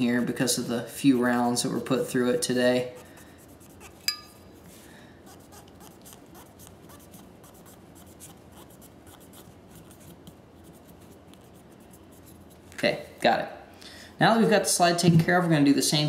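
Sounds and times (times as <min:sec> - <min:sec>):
cotton swab scratching metal: 0:01.0 - 0:12.7.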